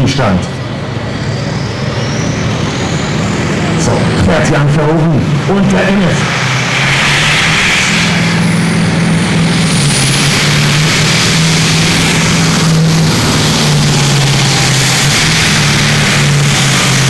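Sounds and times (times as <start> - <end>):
diesel tractor engine under load: 0.0 - 17.0.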